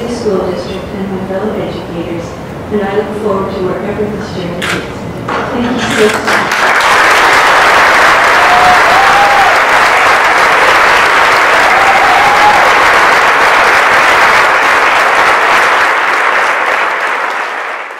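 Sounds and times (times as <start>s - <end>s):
people applauding: 6.0s - 17.9s.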